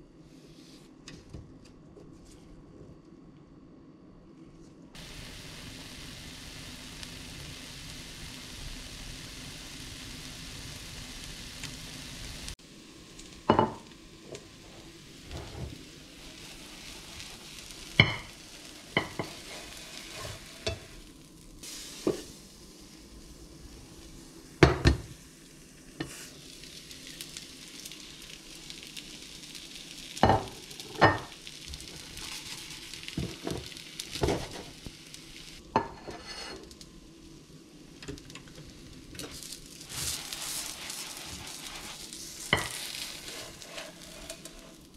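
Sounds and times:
pancake sizzling in a pan: 0:05.0 - 0:44.9.

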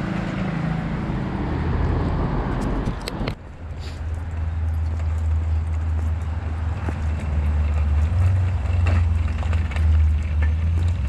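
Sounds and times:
bicycle clicks and rattles: 0:02.5 - 0:11.0.

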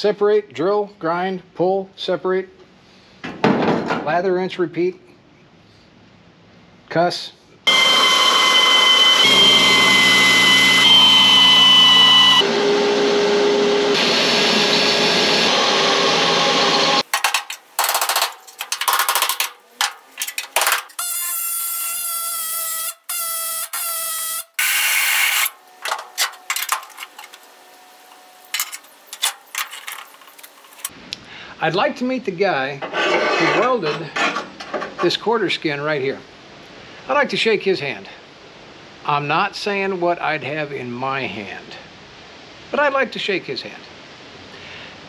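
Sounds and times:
pneumatic tool cutting metal: 0:07.7 - 0:27.5
clicks and scrapes on sheet metal: 0:17.1 - 0:21.2, 0:25.4 - 0:27.4, 0:28.5 - 0:30.9, 0:32.8 - 0:35.0.

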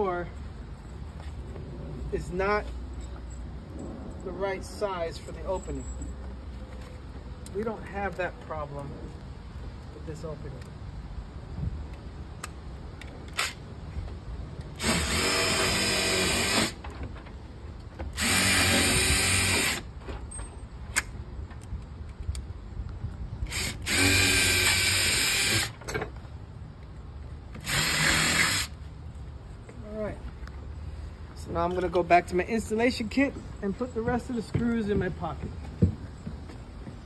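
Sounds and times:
cordless drill driving screws: 0:14.8 - 0:16.8, 0:18.1 - 0:19.9, 0:23.5 - 0:25.8, 0:27.6 - 0:28.8.

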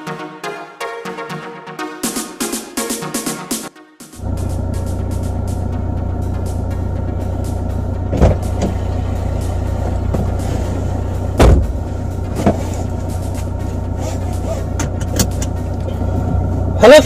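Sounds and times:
steady low hum: 0:04.2 - 0:16.8
car door pulled shut: 0:08.1 - 0:08.8, 0:11.4 - 0:12.9, 0:14.1 - 0:15.5
car door and seat thumps: 0:08.1 - 0:08.9, 0:09.8 - 0:15.6.

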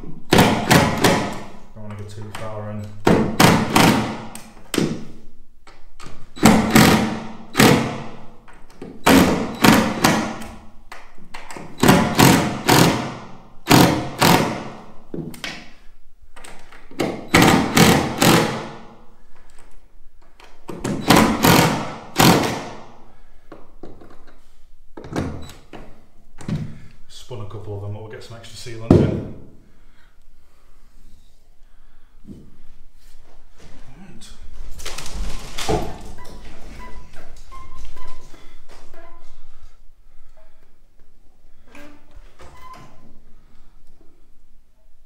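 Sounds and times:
impact driver driving screws: 0:03.1 - 0:04.2, 0:06.4 - 0:08.1, 0:09.0 - 0:10.5, 0:11.6 - 0:14.8, 0:16.9 - 0:18.8, 0:20.8 - 0:22.8.

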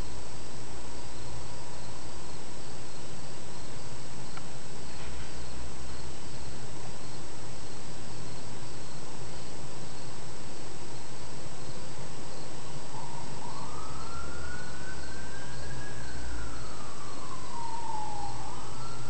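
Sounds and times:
steady hiss with high whine: 0:00.0 - 0:19.0
siren wailing: 0:12.9 - 0:19.0.

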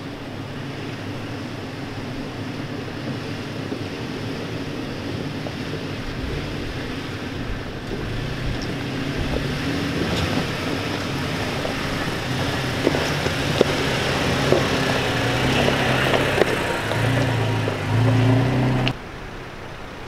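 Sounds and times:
truck engine hum: 0:00.0 - 0:20.0
rocks clicking under wheels: 0:00.2 - 0:19.0
tyres crunching over stones: 0:07.8 - 0:18.9.

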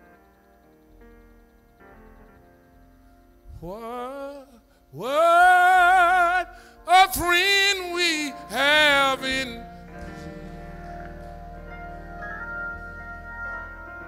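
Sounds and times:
keyboard sustained chord: 0:00.0 - 0:14.0
man singing with vibrato: 0:03.6 - 0:12.5.

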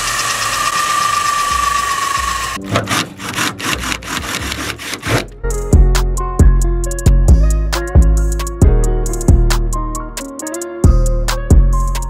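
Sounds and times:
cordless drill whine: 0:00.0 - 0:02.6
drill bit rasping scrapes: 0:00.0 - 0:05.4.

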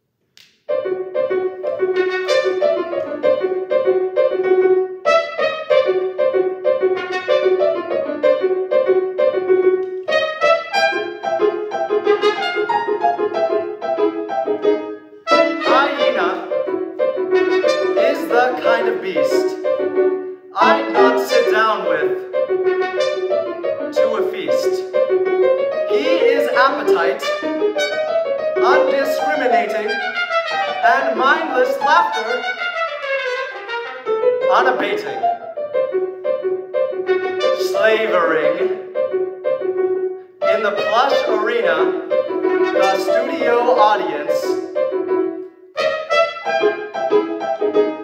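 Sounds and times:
piano accompaniment: 0:00.0 - 0:48.0
trumpet playing: 0:01.6 - 0:13.8, 0:14.5 - 0:35.4, 0:36.8 - 0:38.9, 0:40.4 - 0:44.7, 0:45.7 - 0:48.0.

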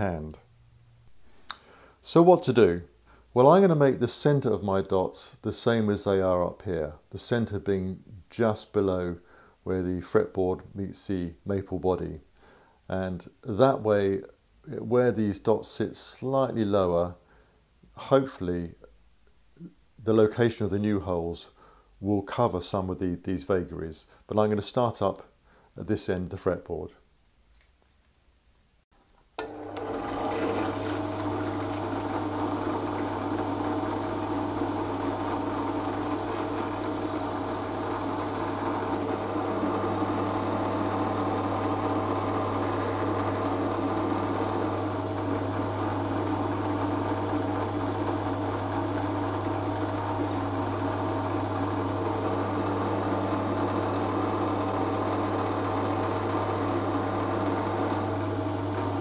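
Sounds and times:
drill bit drilling into wood: 0:29.4 - 0:59.0
drill press motor humming: 0:29.4 - 0:59.0.

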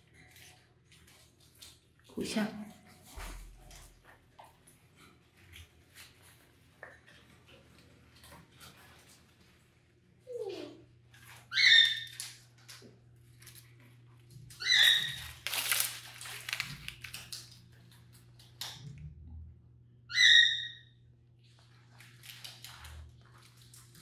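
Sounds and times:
beak crunching leafy twigs: 0:14.5 - 0:17.6.

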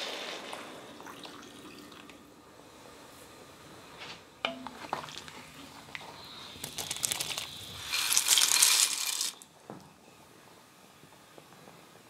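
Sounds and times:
dry noodles clattering into pot: 0:06.6 - 0:09.5.

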